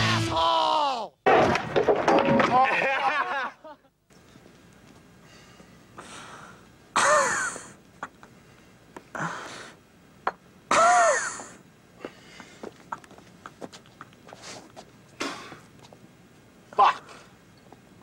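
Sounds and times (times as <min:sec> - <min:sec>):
person's strained vocal outbursts: 0:00.2 - 0:01.2.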